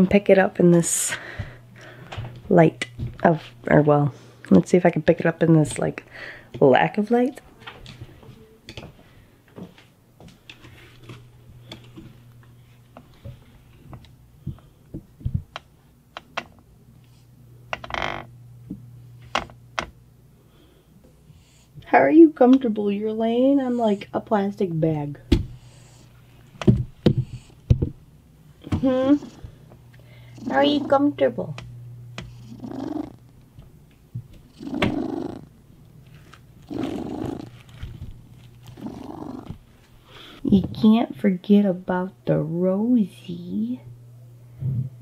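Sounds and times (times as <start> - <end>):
low steady hum: 0.0 - 45.0
cat snoring: 30.4 - 31.0, 32.3 - 33.2, 34.5 - 35.6, 36.6 - 37.7, 38.6 - 39.6
plastic bag crinkling: 36.0 - 38.9.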